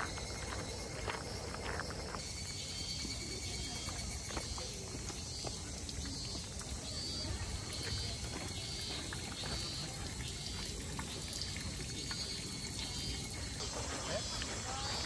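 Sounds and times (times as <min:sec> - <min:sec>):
water trickling over a hand: 0:03.3 - 0:15.0.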